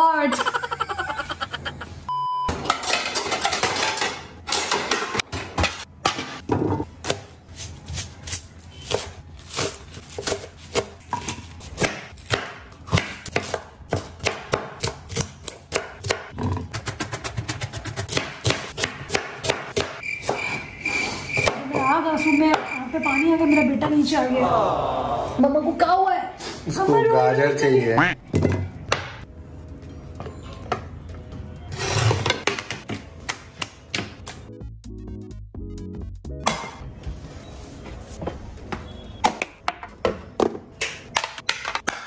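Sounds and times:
high beep: 2.1 - 2.6
knife chopping on wooden board: 11.8 - 20.4.

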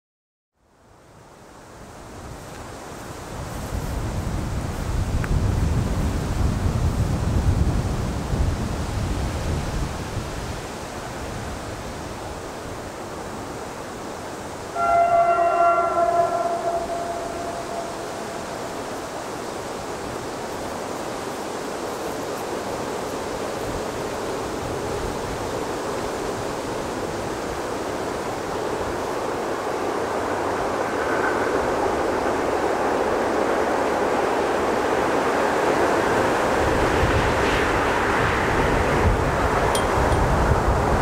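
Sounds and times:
train wheels on rails: 14.4 - 41.0
diesel locomotive approaching: 14.6 - 21.0, 27.1 - 41.0.

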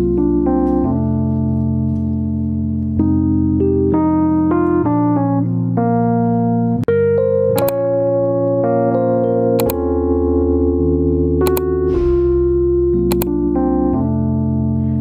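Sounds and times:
keyboard chords: 0.0 - 15.0.

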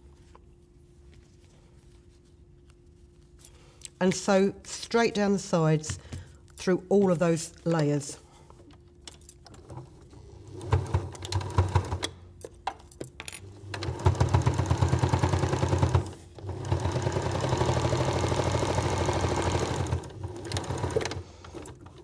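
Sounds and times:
sewing machine stitching: 10.4 - 12.1, 13.6 - 22.0.

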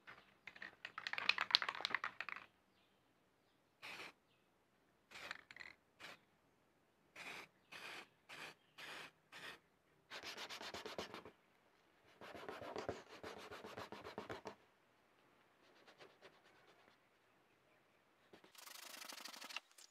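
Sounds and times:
spray paint can hissing: 3.8 - 4.1, 7.2 - 9.6, 18.4 - 19.9
sandpaper rubbing on plastic: 18.4 - 19.7.

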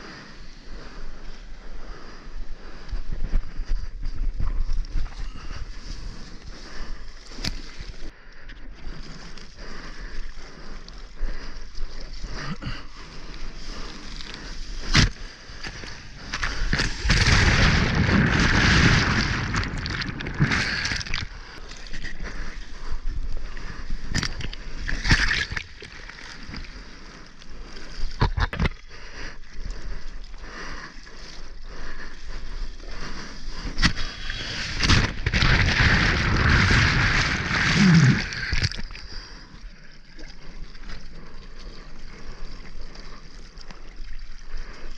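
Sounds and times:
ocean water splashing: 8.9 - 28.1, 28.7 - 44.9
whitewater churning: 13.0 - 23.0, 33.1 - 40.6.

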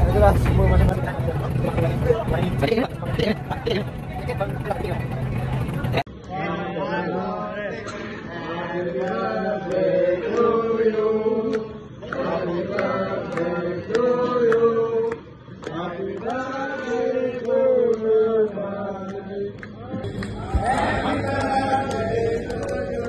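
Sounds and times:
voices chanting a melody: 15.7 - 23.0.

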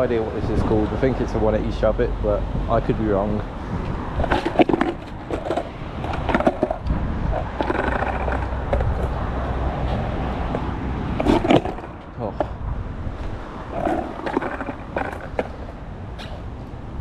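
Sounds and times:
skateboard wheels rumbling on asphalt: 2.6 - 17.0
skateboard clacking down: 4.2 - 9.2, 11.2 - 12.0, 13.7 - 15.8.

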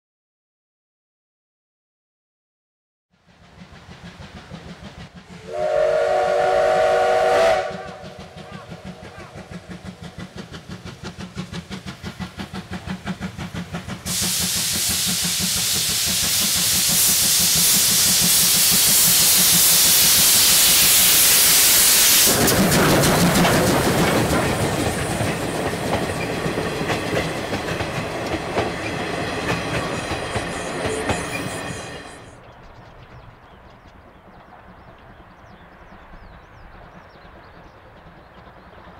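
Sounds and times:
steam locomotive exhaust beats: 3.2 - 38.9
train wheels clacking on rail joints: 3.2 - 38.9
loud steam hiss: 5.1 - 32.3.

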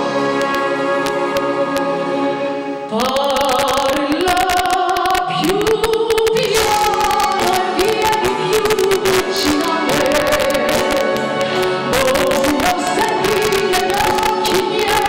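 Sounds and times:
band with piano: 0.0 - 2.9, 6.9 - 15.0
woman singing into a microphone: 2.9 - 15.0.

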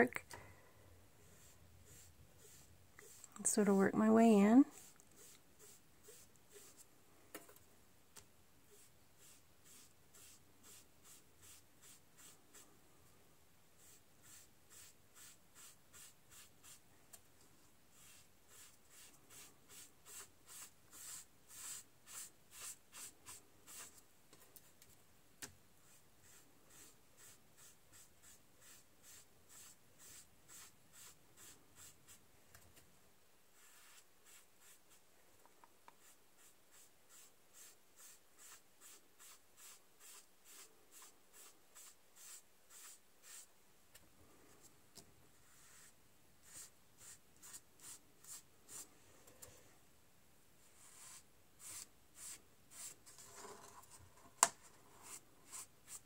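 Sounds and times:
sponge rubbing on paper: 1.2 - 3.3, 4.7 - 6.9, 8.7 - 12.6, 13.8 - 16.8, 17.9 - 24.0, 25.8 - 32.2, 33.6 - 35.0, 36.0 - 43.5, 45.3 - 48.8, 50.7 - 53.3.

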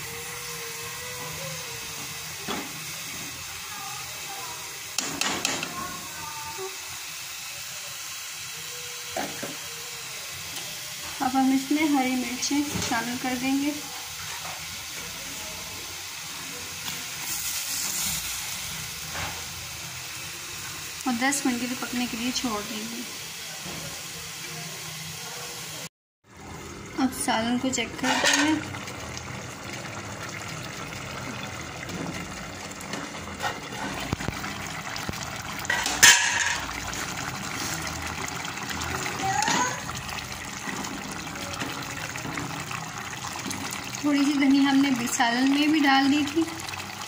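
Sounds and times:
curry simmering with sizzling hiss: 0.0 - 47.0
curry bubbling: 26.3 - 47.0
metal pot lid clanking: 28.0 - 28.7, 35.6 - 36.9.

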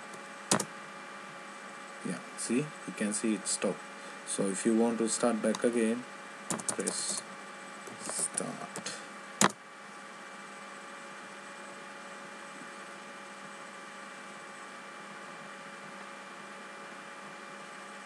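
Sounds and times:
electrical hum and hiss: 0.0 - 18.0
sharp click: 6.5 - 7.2, 8.0 - 9.6.

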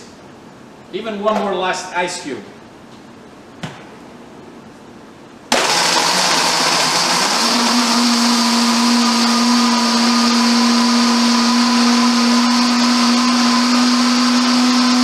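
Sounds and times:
blender motor whine: 5.5 - 15.0.

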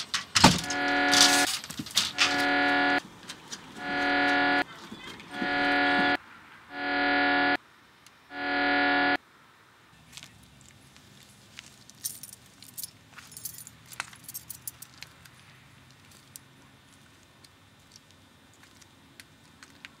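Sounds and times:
low steady hum: 0.6 - 3.0
faint clicks and jingling: 11.9 - 15.3.

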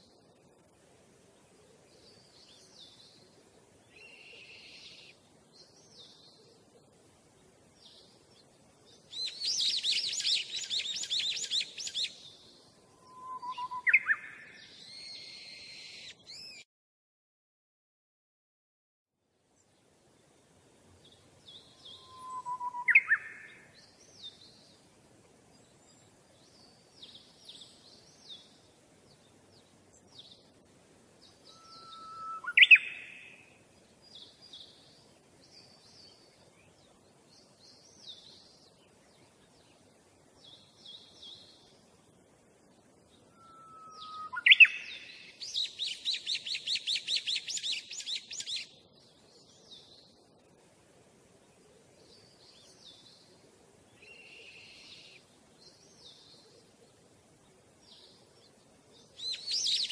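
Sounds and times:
songbirds chirping: 0.0 - 16.7, 19.3 - 59.9
bird whistle jumping to higher note: 13.0 - 14.1, 22.0 - 23.2, 43.4 - 44.8.

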